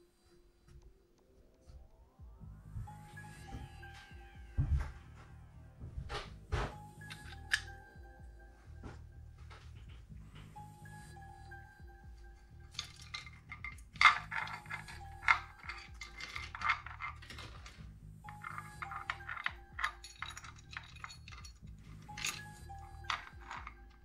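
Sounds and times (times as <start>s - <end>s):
background music: 0.0s - 24.0s
metal tools clinking: 6.9s - 7.9s, 12.3s - 24.0s.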